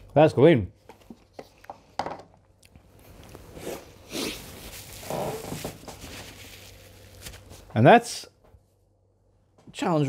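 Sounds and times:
tissue rustling: 2.9s - 7.7s.

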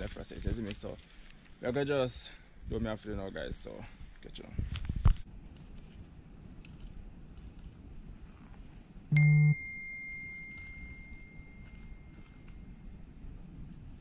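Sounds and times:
bell-like ding: 9.2s - 12.2s.

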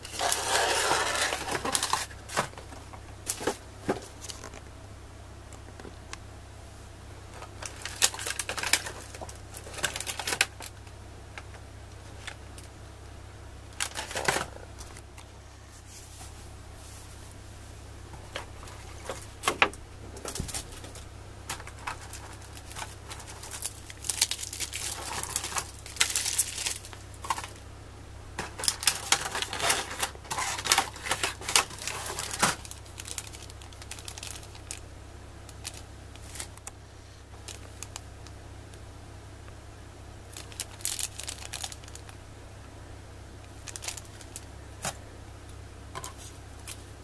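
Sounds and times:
plastic packaging crinkling: 0.0s - 4.7s, 7.4s - 10.9s, 13.7s - 15.1s, 18.3s - 27.7s, 28.4s - 38.4s, 40.3s - 42.2s, 43.4s - 45.0s.

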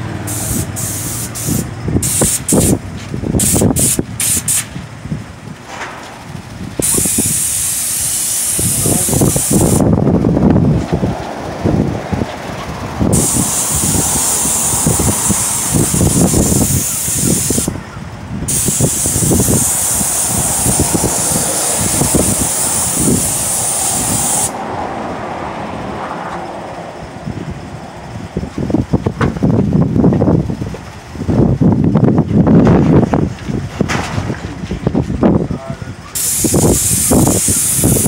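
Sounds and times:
low rumble: 0.0s - 6.9s, 8.7s - 16.6s, 17.7s - 35.9s
paint spray gun hissing: 0.2s - 2.8s, 3.4s - 4.7s, 6.8s - 9.8s, 13.1s - 17.7s, 18.5s - 24.6s, 36.2s - 38.0s.

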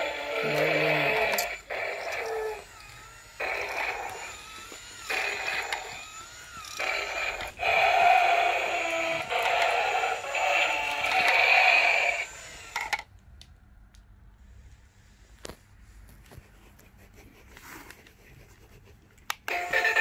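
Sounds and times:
toy dinosaur electronic sound effects: 0.0s - 13.0s, 19.5s - 20.0s.

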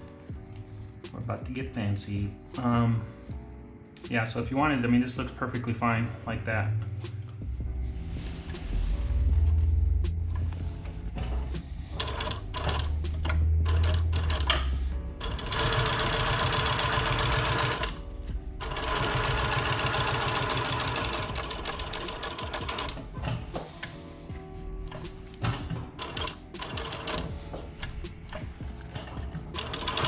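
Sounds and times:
sewing machine stitching: 12.0s - 14.6s, 15.2s - 18.0s, 18.6s - 23.0s, 25.6s - 27.3s, 28.3s - 30.0s.

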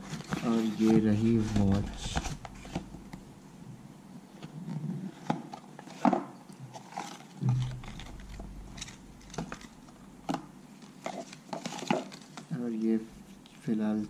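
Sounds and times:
packaging handling clicks and rustles: 0.0s - 2.8s, 5.1s - 13.6s
brief low hum: 7.4s - 10.2s.

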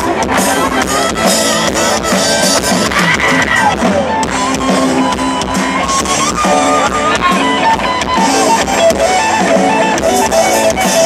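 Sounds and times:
live rock band: 0.0s - 11.0s.

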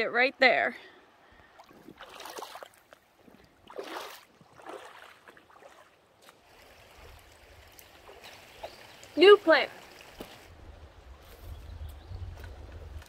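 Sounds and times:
boots splashing through creek: 1.5s - 10.6s.

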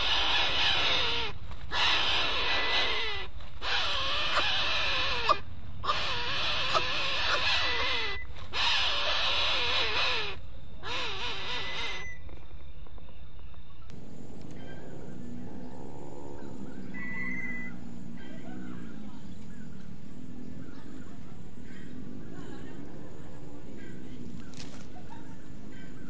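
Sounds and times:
chicks wavering begging calls: 13.9s - 26.0s.

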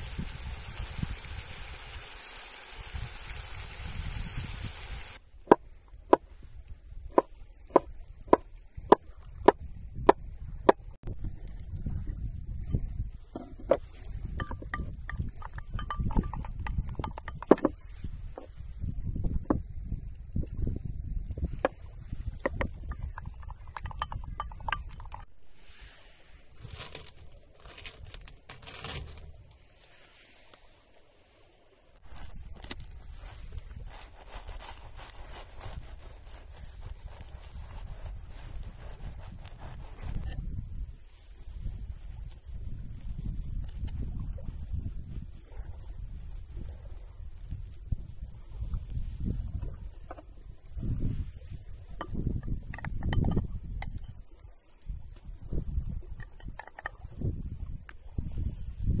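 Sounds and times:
mushrooms sizzling in oil: 0.0s - 5.2s
wooden spoon knocking ceramic bowl: 14.4s - 17.7s, 22.6s - 25.2s.

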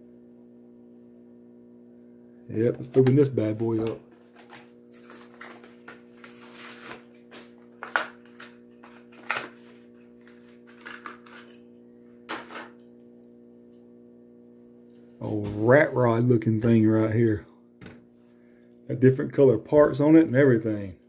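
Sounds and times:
plastic packaging torn open: 5.0s - 11.7s.

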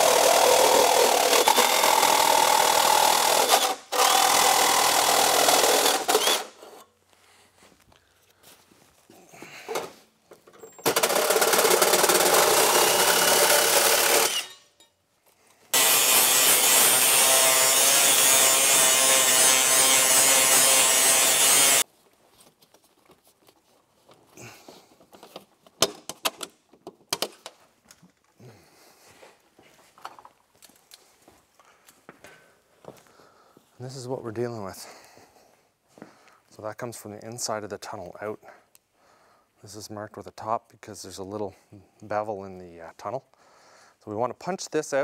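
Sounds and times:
angle grinder grinding metal: 0.0s - 6.8s, 10.8s - 14.8s, 15.7s - 21.8s.

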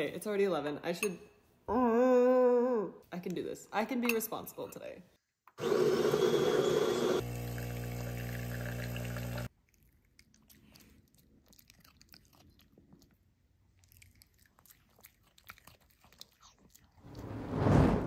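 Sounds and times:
espresso machine pump humming: 5.6s - 9.5s
dog crunching a treat: 9.5s - 17.0s.

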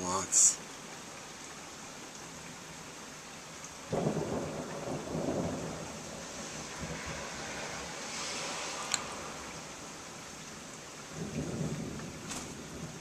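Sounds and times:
steady rain: 0.0s - 13.0s
thunder rumbling: 3.9s - 10.2s, 11.0s - 13.0s.

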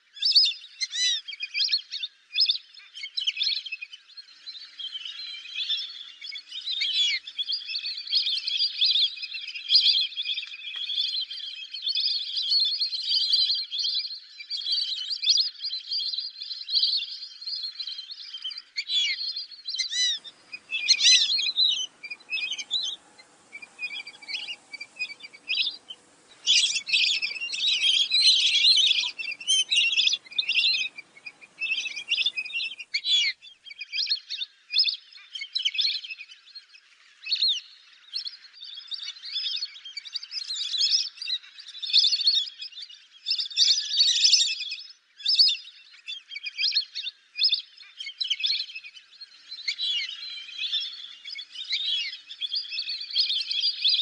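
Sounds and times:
whistling ducks calling: 19.8s - 33.4s.

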